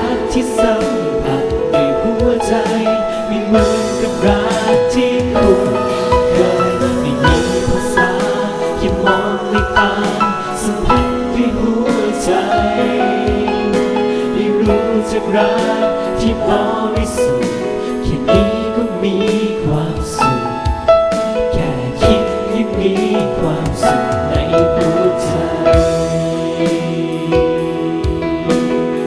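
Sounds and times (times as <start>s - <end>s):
song with held notes: 0.0s - 29.0s
steady drum beat: 3.6s - 18.8s.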